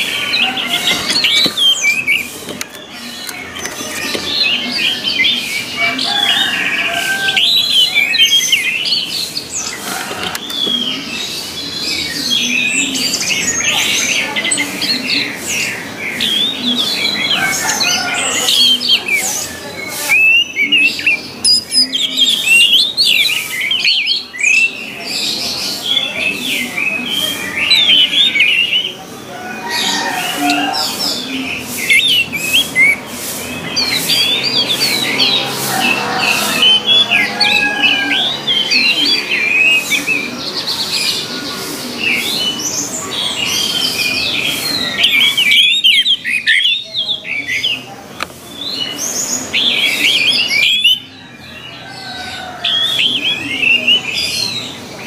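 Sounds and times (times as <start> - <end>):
thrush singing: 0.0 - 55.0.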